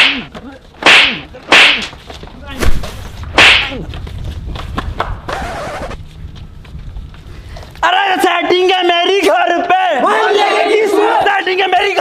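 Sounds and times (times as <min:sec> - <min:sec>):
punches and slaps: 0:00.0 - 0:02.0, 0:02.6 - 0:03.8
whip-like swishing hits: 0:00.0 - 0:02.0, 0:02.6 - 0:03.8.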